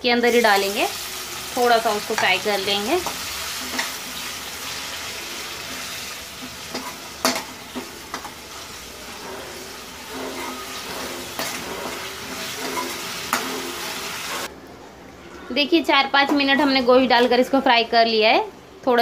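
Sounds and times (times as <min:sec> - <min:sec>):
meat sizzling in hot oil: 0:00.2 - 0:14.5
spatula scraping a wok: 0:01.9 - 0:14.5.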